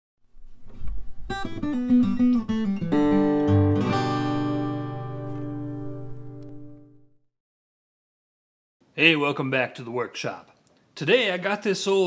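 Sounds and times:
acoustic guitar playing: 0:00.4 - 0:07.2.

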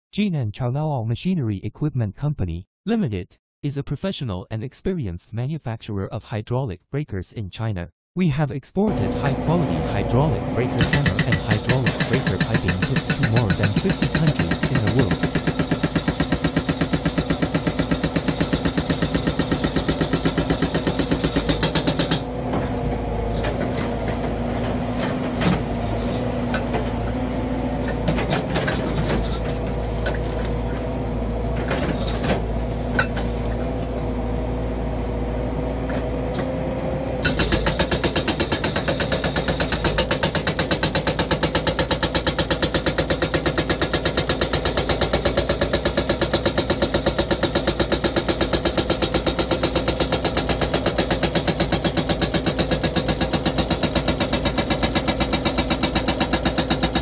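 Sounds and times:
excavator engine running: 0:08.9 - 0:57.0
scattered knocks: 0:10.8 - 0:22.2
hydraulic breaker hammering rock: 0:10.8 - 0:25.8, 0:37.2 - 0:57.0.

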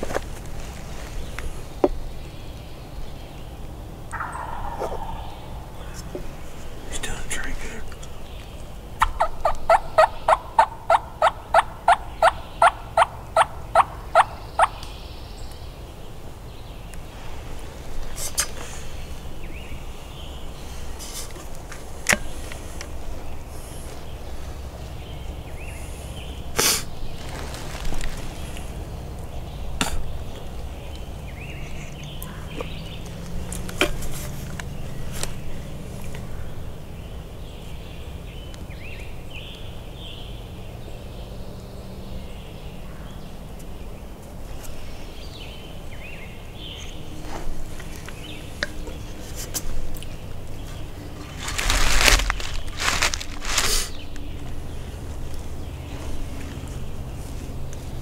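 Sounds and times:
small birds chirping: 0:00.0 - 0:58.0
steady low rumble: 0:00.0 - 0:58.0.

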